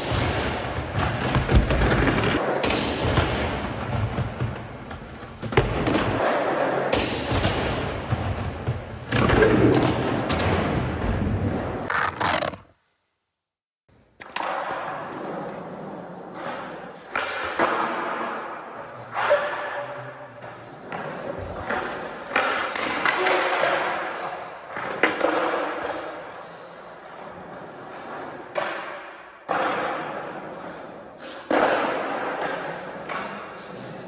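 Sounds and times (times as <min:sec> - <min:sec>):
skateboard wheels rolling: 0:11.0 - 0:12.7.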